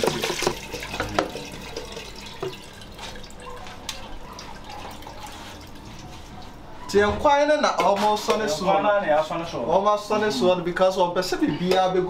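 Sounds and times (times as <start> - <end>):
soup pouring into a metal pot: 0.0 - 6.3
liquid splashing and dripping: 0.0 - 6.7.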